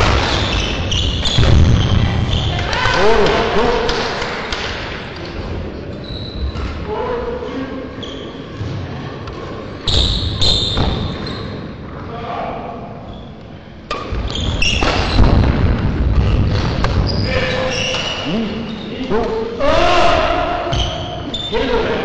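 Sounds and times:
voices in a hall: 0.0 - 22.0
shoe squeaks: 0.2 - 2.6, 5.2 - 6.8, 7.9 - 8.6, 9.8 - 11.7, 13.0 - 15.2, 17.0 - 19.0, 20.7 - 21.7.

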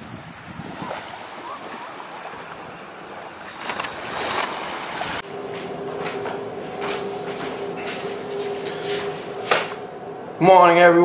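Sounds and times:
water splashes: 0.0 - 10.3
wind on microphone: 0.0 - 10.6
waves washing onto beach: 0.0 - 10.8
steady low hum: 2.8 - 11.0.

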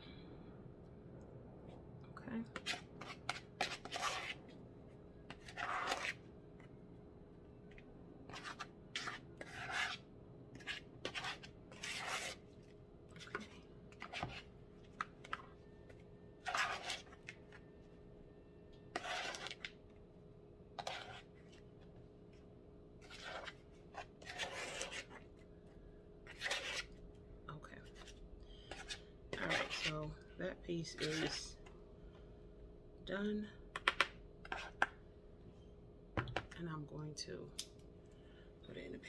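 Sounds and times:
metal spoon scraping plastic bowl: 2.6 - 4.4, 5.3 - 6.2, 8.3 - 10.0, 10.6 - 12.4, 16.4 - 17.2, 18.9 - 19.7, 20.8 - 21.3, 23.0 - 25.2, 26.3 - 26.9, 28.7 - 30.1, 30.8 - 31.5.

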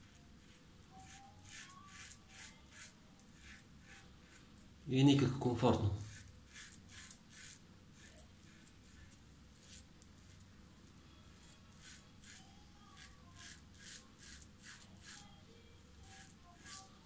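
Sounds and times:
razor scraping stubble: 0.0 - 17.0.

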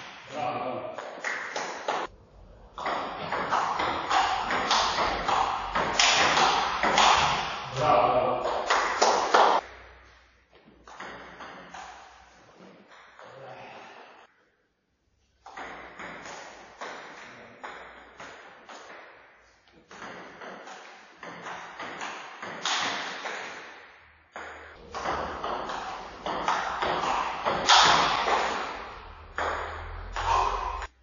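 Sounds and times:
table tennis ball hits: 2.7 - 7.8, 8.4 - 10.0, 10.8 - 13.2, 15.4 - 30.9.

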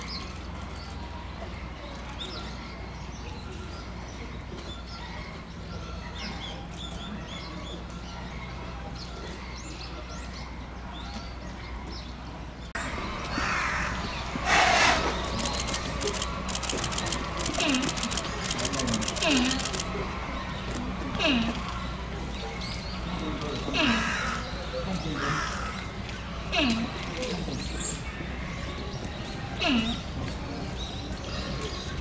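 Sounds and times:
small birds chirping: 0.0 - 32.0
loud hiss-like noise: 14.2 - 19.7.

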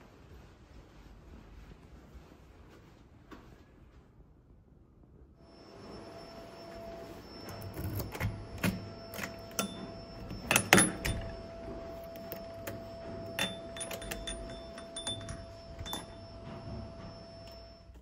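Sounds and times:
key clicking in door lock: 13.4 - 16.0
keys jangling on chain: 13.4 - 16.1.

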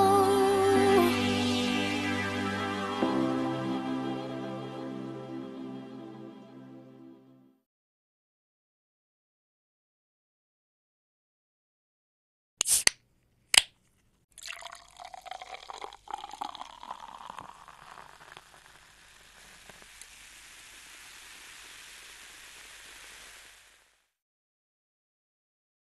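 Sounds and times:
soda fizzing hiss: 12.6 - 12.9, 14.4 - 24.2
soda pouring into a glass: 14.4 - 24.2.

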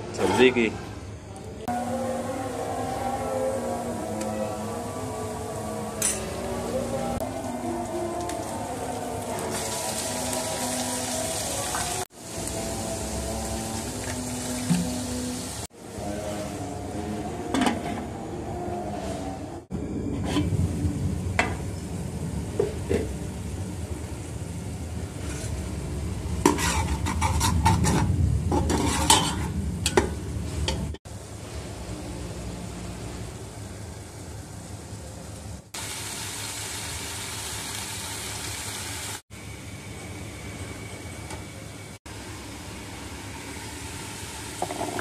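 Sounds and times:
spoon clinking and scraping pot: 6.0 - 6.4, 26.4 - 31.0
food sizzling in a pot: 7.4 - 16.6, 35.3 - 39.6, 42.1 - 45.0.

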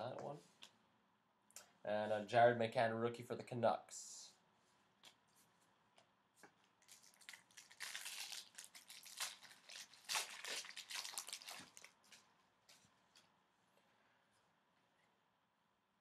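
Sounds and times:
foil wrapper tearing and crinkling: 6.8 - 12.2.

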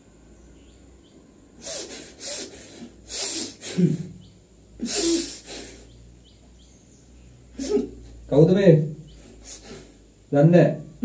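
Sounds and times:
man breathing out in hissing bursts: 1.6 - 4.2, 4.8 - 6.0, 9.2 - 10.2.

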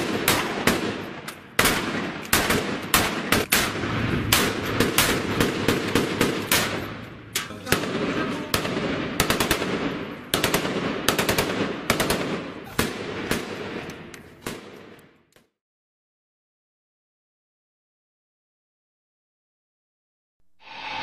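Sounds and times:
rifle fire echoing: 0.0 - 15.2.

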